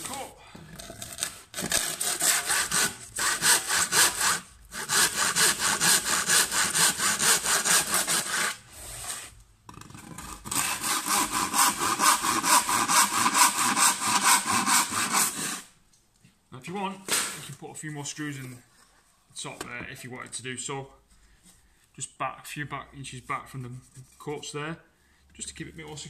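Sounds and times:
handsaw cutting chipboard: 0:01.0 - 0:08.6, 0:10.1 - 0:15.7.

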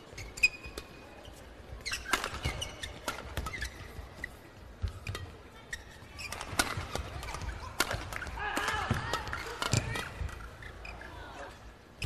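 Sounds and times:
shoes squeaking on court: 0:00.0 - 0:11.6
racket hitting shuttlecock: 0:01.8 - 0:10.7.

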